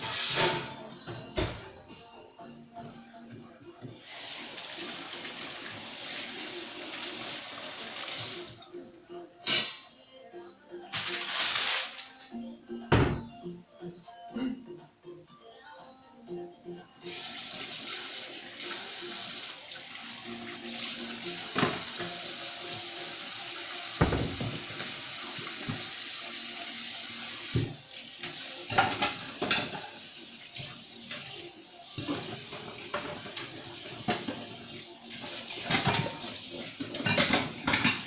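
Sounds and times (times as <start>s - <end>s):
dishes clinking and knocking: 21.5s - 22.2s, 24.0s - 24.9s, 28.7s - 30.0s, 32.0s - 34.6s, 35.6s - 38.0s.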